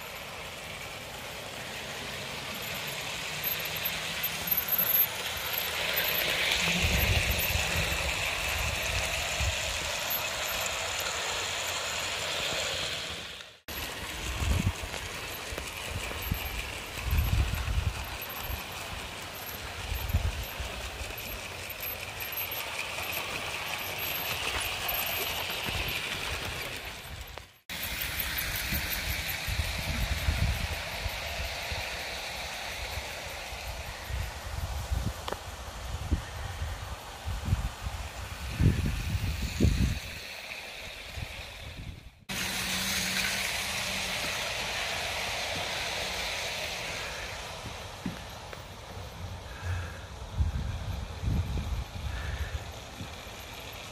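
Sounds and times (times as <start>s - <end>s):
model train wheels clicking: 0.0s - 53.9s
wind buffeting microphone: 14.0s - 21.2s, 28.6s - 32.2s, 32.8s - 42.2s.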